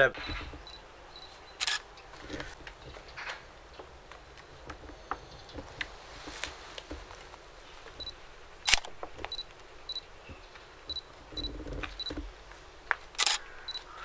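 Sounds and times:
sharp clicks: 0:00.0 - 0:03.4, 0:07.9 - 0:12.3, 0:12.9 - 0:14.0.

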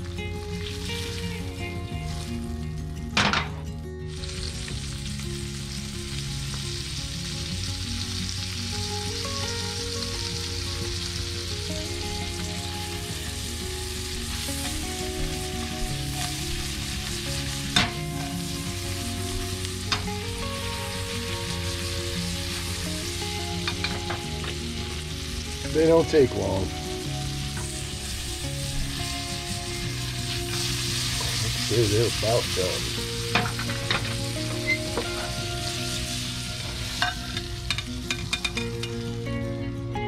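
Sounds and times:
shrimp sizzling in a pan: 0:00.0 - 0:39.3.

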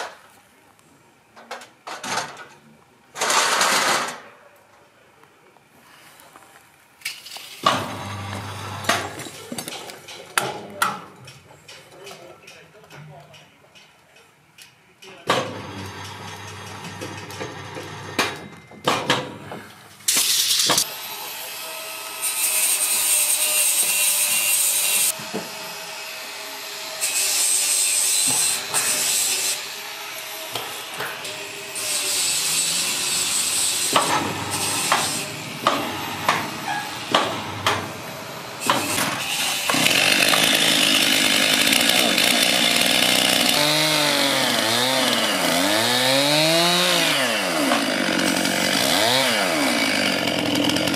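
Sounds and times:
sawing noise: 0:07.6 - 0:09.5, 0:20.1 - 0:50.9
chainsaw cutting timber: 0:07.7 - 0:09.2, 0:15.4 - 0:18.3, 0:30.5 - 0:50.9.

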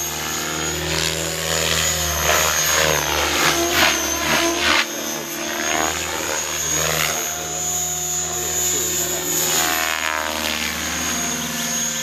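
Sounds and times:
aircraft engine hum: 0:00.0 - 0:12.0
high steady whine: 0:00.0 - 0:12.0.

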